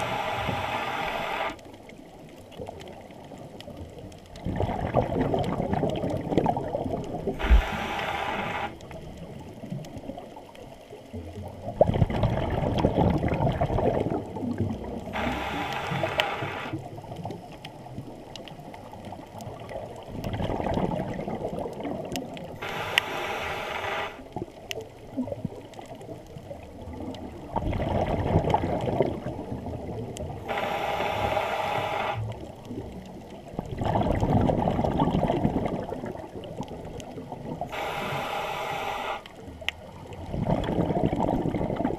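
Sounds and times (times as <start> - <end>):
hissing regulator inhale: 0.0 - 1.6, 7.4 - 9.0, 15.1 - 16.8, 22.6 - 24.2, 30.4 - 32.4, 37.7 - 39.3.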